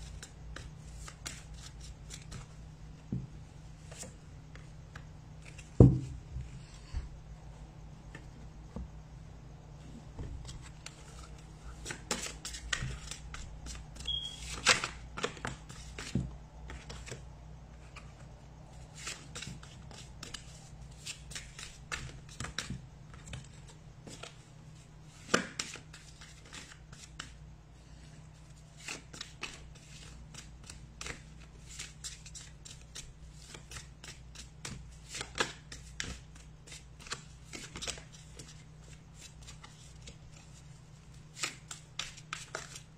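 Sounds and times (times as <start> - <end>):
cards sliding and tapping: 28.8 - 40.6, 41.3 - 42.9.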